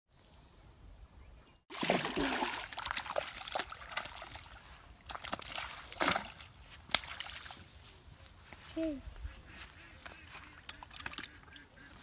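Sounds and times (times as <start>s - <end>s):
fish splashing in water: 1.7s - 7.5s, 10.6s - 11.6s.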